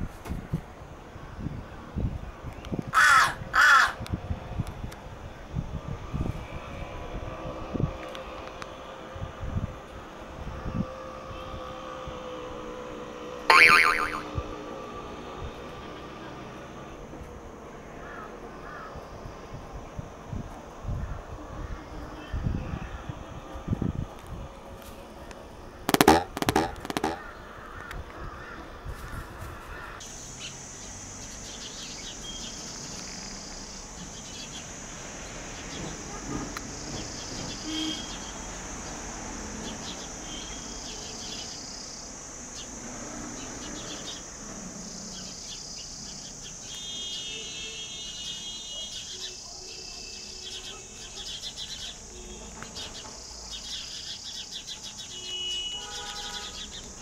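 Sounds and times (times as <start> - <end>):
high-pitched insect trilling: 13.5 - 14.3
small birds chirping: 30.1 - 42.8, 48.0 - 57.0.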